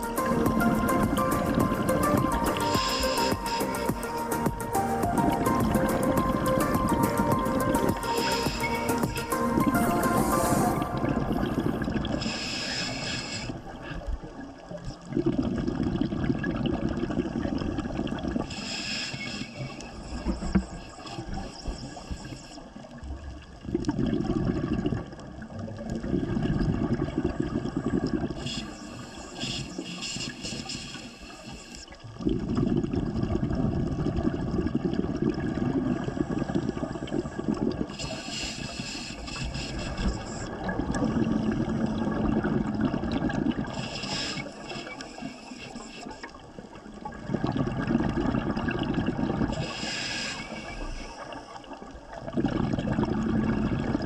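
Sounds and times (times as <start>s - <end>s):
regulator hissing inhale: 0.0s - 14.1s, 18.4s - 22.9s, 28.2s - 32.0s, 37.8s - 40.6s, 43.6s - 46.8s, 49.5s - 51.8s
bubbling exhale underwater: 0.0s - 22.0s, 23.2s - 30.6s, 32.0s - 54.0s.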